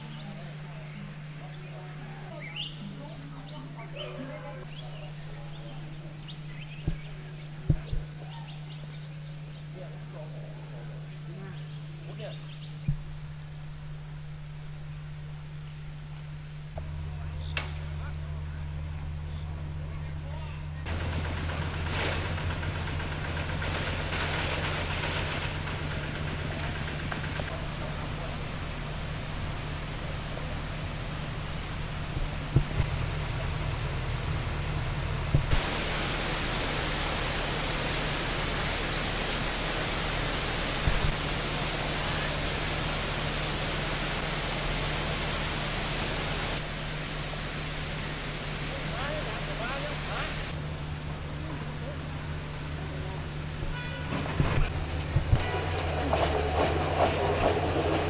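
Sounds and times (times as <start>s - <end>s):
insects chirping: 0.0s - 21.5s, 22.3s - 58.0s
constant low hum: 0.0s - 58.0s
steady hiss: 0.0s - 58.0s
low thumps: 6.8s - 8.1s, 32.0s - 35.7s.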